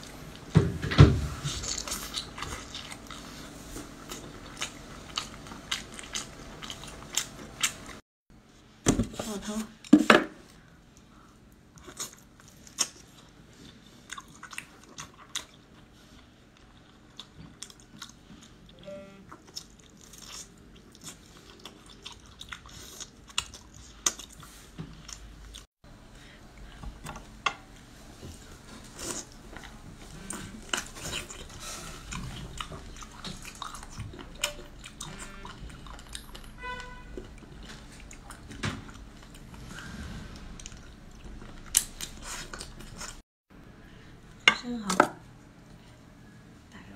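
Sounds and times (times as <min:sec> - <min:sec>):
chewing and crunching: 0:01.4 - 0:08.0, 0:10.9 - 0:25.7, 0:28.6 - 0:43.2.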